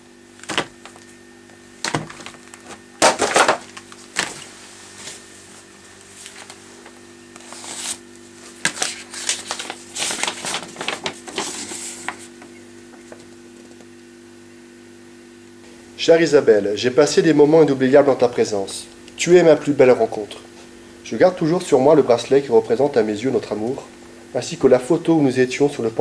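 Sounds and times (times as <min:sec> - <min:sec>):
faint steady hum: 0:00.0 - 0:26.0
paper rustling: 0:00.4 - 0:01.2, 0:01.8 - 0:13.7.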